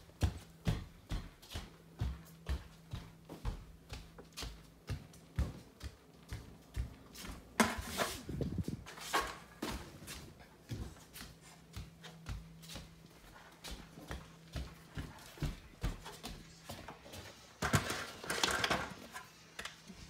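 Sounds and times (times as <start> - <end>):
footsteps walking: 0.0 - 18.3.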